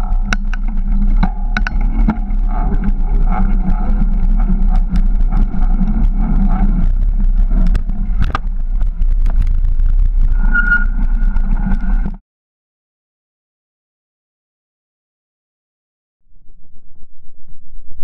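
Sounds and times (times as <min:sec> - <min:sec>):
bike tyre rumble: 0:00.0 - 0:12.2
wind noise: 0:00.0 - 0:12.2
high squeal: 0:10.3 - 0:12.0.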